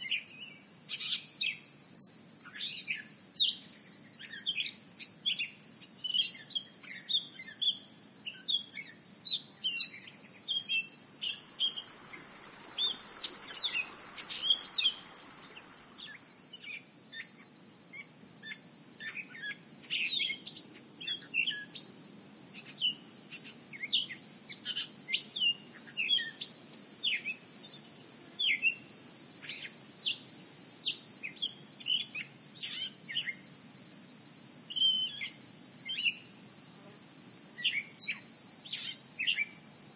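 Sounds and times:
songbirds chirping: 0.0s - 39.9s
high-pitched insect drone: 6.2s - 21.9s.

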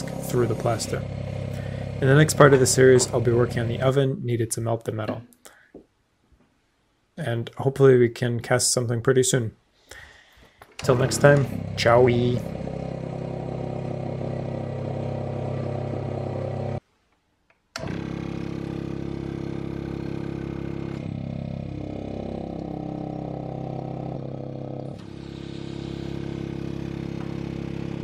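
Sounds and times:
vacuum pump humming: 0.0s - 4.0s, 10.7s - 16.8s, 17.8s - 28.0s.

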